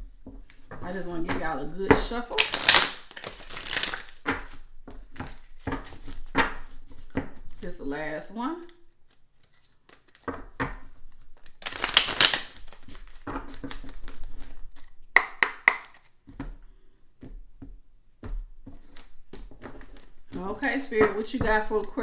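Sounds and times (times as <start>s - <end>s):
cards being shuffled: 2.3s - 7.8s, 8.6s - 16.1s, 18.6s - 22.0s
sharp snaps of cards: 11.7s - 12.6s.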